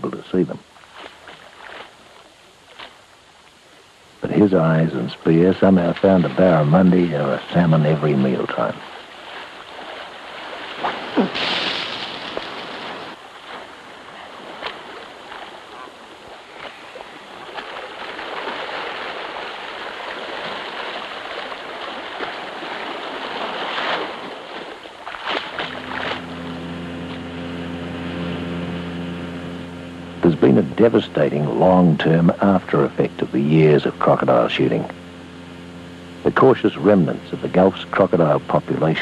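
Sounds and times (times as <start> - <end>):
steady engine hum: 3.6 - 11.5, 24.2 - 39.0
surf washing on shore: 4.3 - 27.3
sharp water splashes: 8.8 - 26.3.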